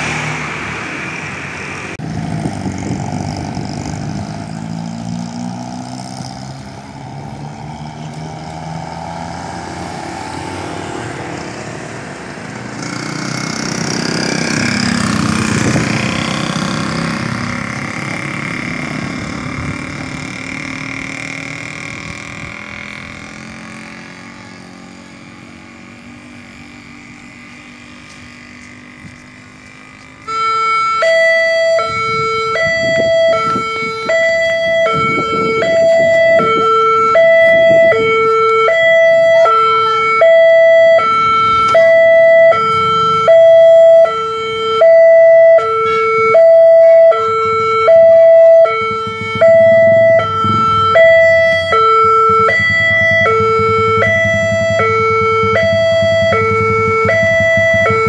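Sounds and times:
street ambience: 0:00.0 - 0:58.0
level-crossing alarm two-tone: 0:30.2 - 0:58.0.

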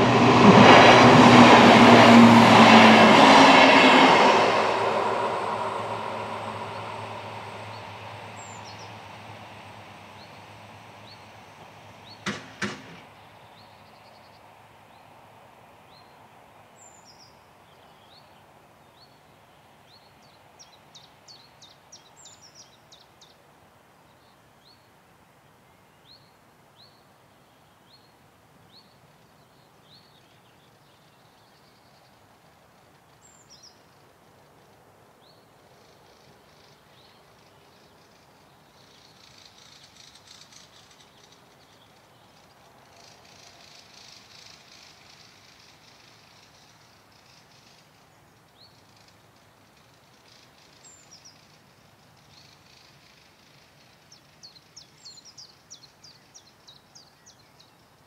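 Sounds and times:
passing train running noise: 0:00.0 - 0:13.6, 0:32.9 - 0:48.0, 0:48.8 - 0:54.8
small birds chirping: 0:07.5 - 0:09.2, 0:35.2 - 0:58.0
sharp knocks: 0:12.2 - 0:13.1.

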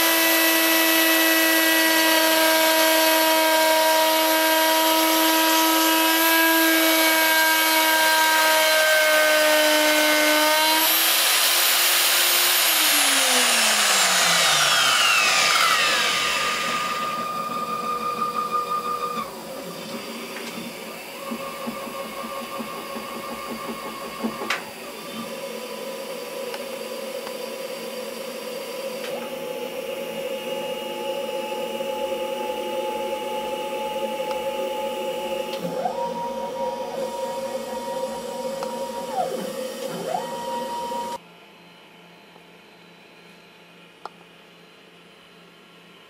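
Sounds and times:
bit cutting into wood: 0:00.0 - 0:19.3
router motor whining: 0:00.0 - 0:41.2.

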